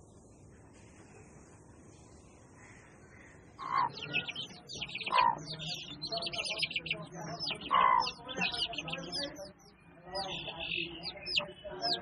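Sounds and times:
birds chirping: 0:00.0 - 0:12.0
lower bird calls: 0:02.4 - 0:09.4.

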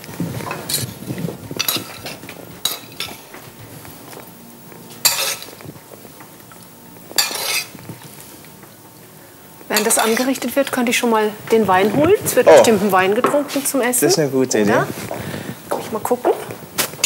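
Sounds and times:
metal spoon clinking in pan: 0:05.0 - 0:05.5, 0:07.2 - 0:07.7.

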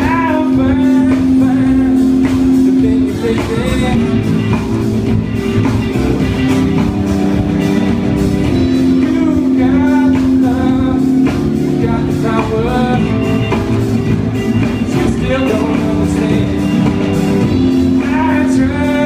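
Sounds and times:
person singing: 0:00.0 - 0:04.7, 0:08.7 - 0:13.9, 0:14.6 - 0:19.0
live band playing: 0:00.0 - 0:19.0.

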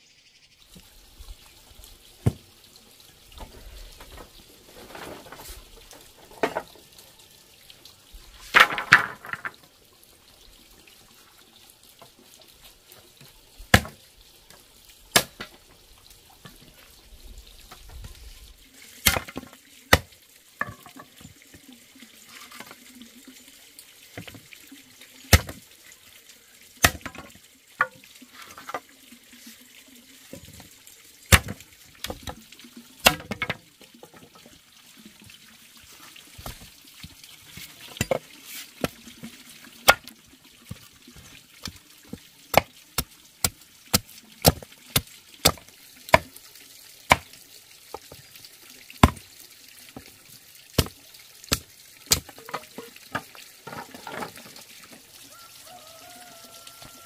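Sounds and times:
machete chopping wooden sticks: 0:13.7 - 0:14.0, 0:15.2 - 0:15.5, 0:19.1 - 0:20.1, 0:26.8 - 0:27.2, 0:31.3 - 0:32.2, 0:33.0 - 0:33.5, 0:45.4 - 0:46.3.

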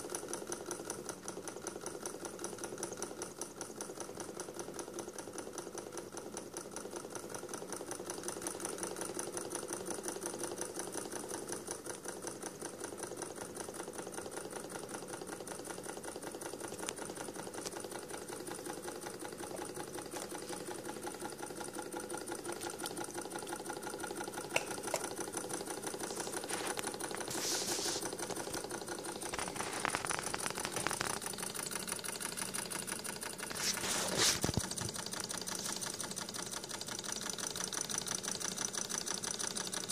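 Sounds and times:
engine mechanical clatter: 0:05.2 - 0:39.9
handling rustles: 0:26.0 - 0:28.5.

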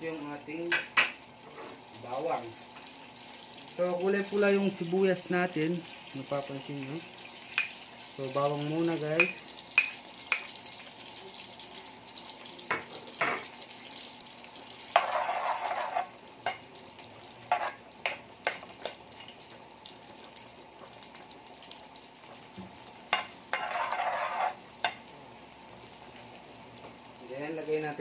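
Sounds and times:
butter sizzling in a frying pan: 0:00.0 - 0:28.0
utensil scraping pan: 0:14.9 - 0:16.1, 0:17.5 - 0:17.8, 0:23.2 - 0:24.6.

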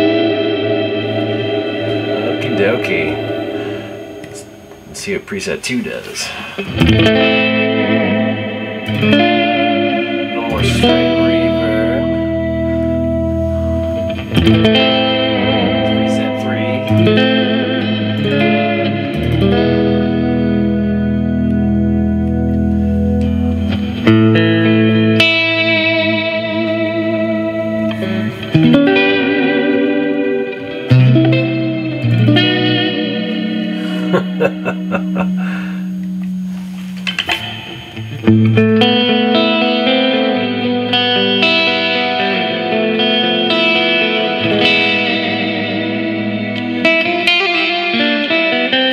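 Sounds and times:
held low guitar note: 0:00.0 - 0:04.9
electric guitar chords with reverb: 0:00.0 - 0:05.0, 0:06.3 - 0:48.9
short choppy guitar strokes: 0:33.4 - 0:38.2.

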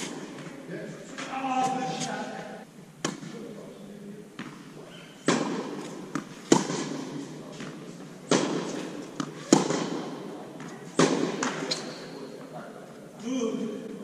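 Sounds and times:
tennis balls struck by rackets: 0:03.0 - 0:03.4, 0:04.4 - 0:12.1
tennis ball bounces: 0:05.2 - 0:11.7.

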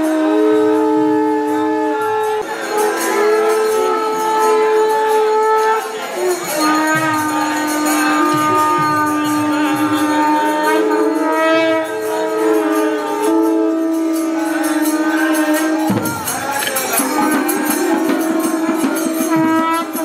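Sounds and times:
conch shells blowing long notes: 0:00.0 - 0:20.0
metallic jingling: 0:15.0 - 0:20.0.

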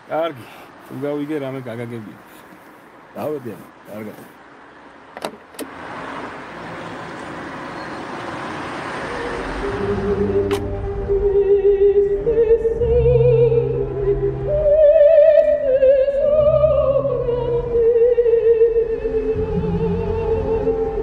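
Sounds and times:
operatic singing with vibrato: 0:08.8 - 0:21.0
low sustained accompaniment: 0:09.5 - 0:21.0.

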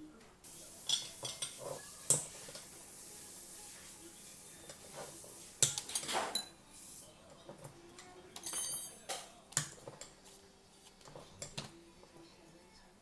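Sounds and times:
dishes and cutlery clinking: 0:00.8 - 0:02.8, 0:04.6 - 0:06.7, 0:07.3 - 0:10.3, 0:10.9 - 0:12.3.

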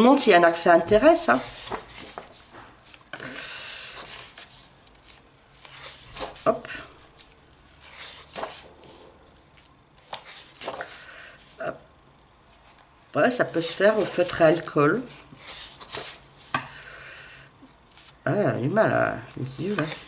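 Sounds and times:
paper pages rustling: 0:00.8 - 0:03.1, 0:03.8 - 0:11.6, 0:13.5 - 0:16.3, 0:19.3 - 0:20.0.

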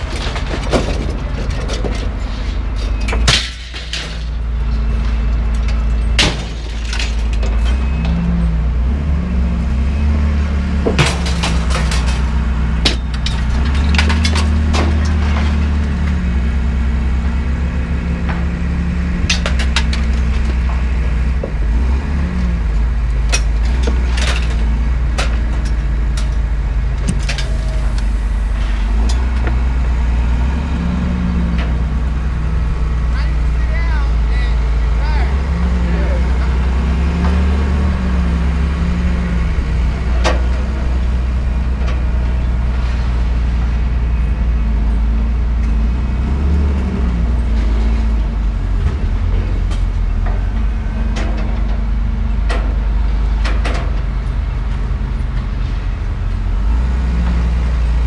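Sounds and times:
scrap iron clanging onto pile: 0:00.0 - 0:04.4, 0:05.6 - 0:07.8, 0:10.9 - 0:15.8, 0:23.3 - 0:26.4, 0:27.0 - 0:28.0
engine droning: 0:00.0 - 0:58.0.

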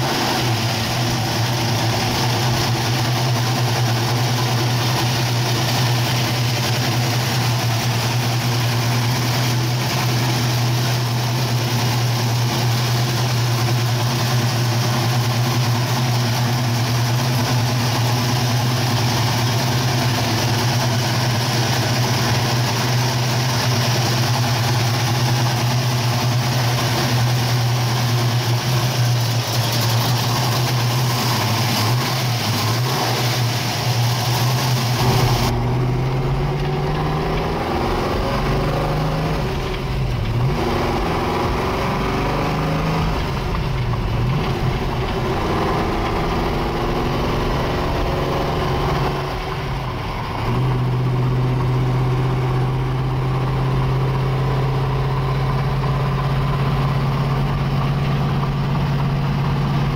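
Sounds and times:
car engine idling: 0:00.0 - 0:59.9.

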